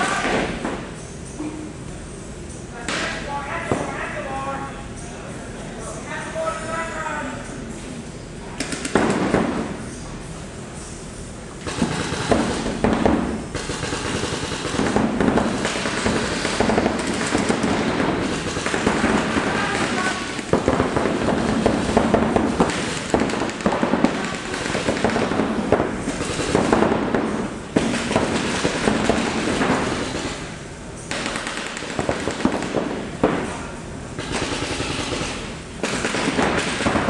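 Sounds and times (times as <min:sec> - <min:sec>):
paintball markers firing: 0:34.2 - 0:37.0.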